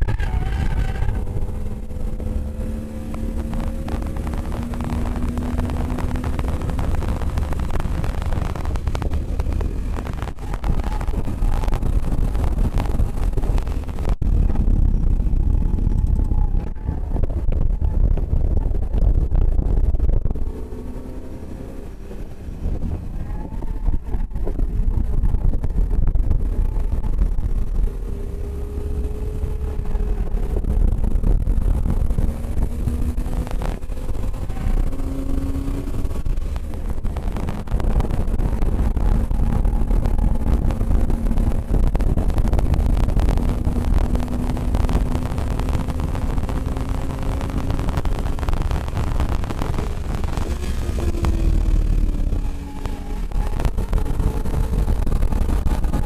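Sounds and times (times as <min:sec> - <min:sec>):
car engine accelerating: 0:00.0 - 0:56.0
wind buffeting microphone: 0:00.0 - 0:56.0.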